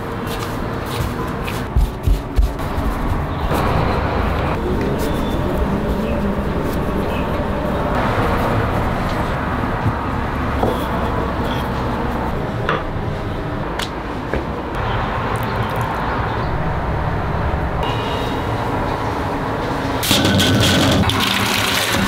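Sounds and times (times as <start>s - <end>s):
steady background noise: 0.0s - 22.0s
dough knocking on wooden board: 1.7s - 2.6s.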